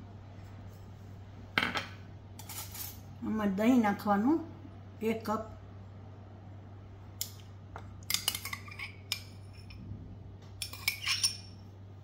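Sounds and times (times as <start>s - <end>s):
metal spoon clinking on glassware: 8.1s - 9.8s, 10.6s - 11.6s.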